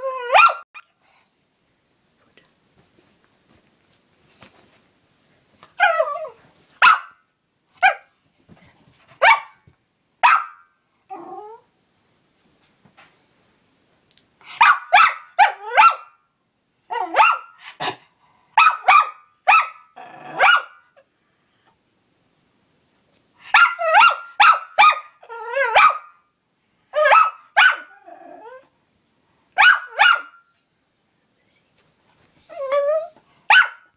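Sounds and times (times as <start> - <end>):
small dog barking: 0.3 - 0.6, 6.8 - 7.2, 7.8 - 8.1, 9.2 - 9.6, 10.2 - 10.7, 14.6 - 16.2, 17.0 - 17.6, 18.6 - 20.8, 23.5 - 26.2, 26.9 - 27.9, 29.6 - 30.4, 33.5 - 33.9.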